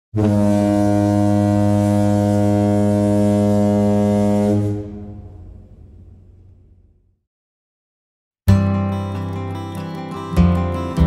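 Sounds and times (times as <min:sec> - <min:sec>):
ship's horn deep blast: 0:00.2 - 0:06.3.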